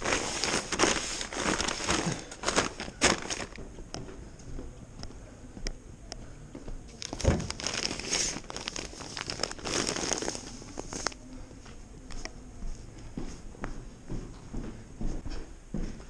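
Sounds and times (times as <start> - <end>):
sack crinkling and rustling: 0.0 - 3.6, 7.0 - 11.2
footsteps: 0.0 - 16.0.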